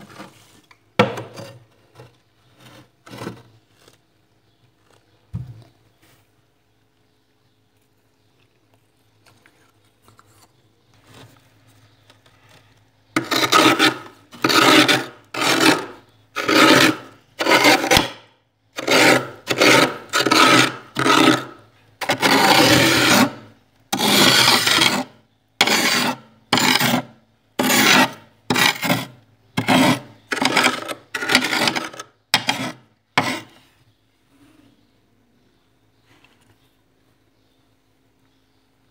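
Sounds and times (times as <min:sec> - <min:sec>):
knife scraping frost: 0:13.2 - 0:18.2, 0:18.8 - 0:33.6.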